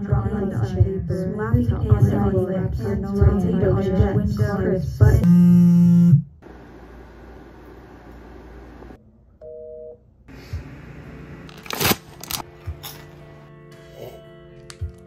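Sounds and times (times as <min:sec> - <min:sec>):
crunching granola bar: 0:11.5 - 0:13.1.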